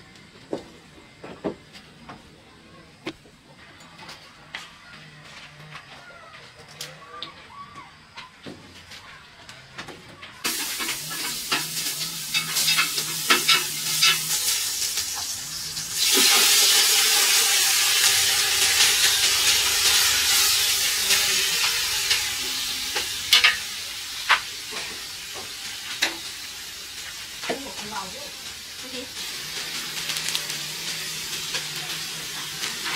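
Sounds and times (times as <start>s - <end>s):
food sizzling in hot oil: 10.4s - 32.9s
utensil scraping a pan: 10.5s - 14.6s.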